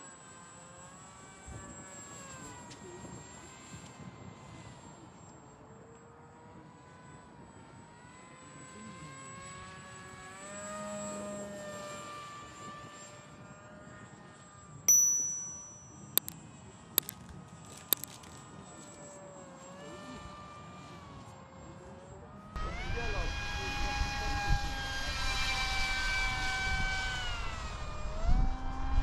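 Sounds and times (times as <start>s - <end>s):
electric motor propeller whine: 0.0s - 14.4s, 19.0s - 29.0s
bright ding: 14.9s - 16.4s
sharp clicks: 14.9s - 16.4s.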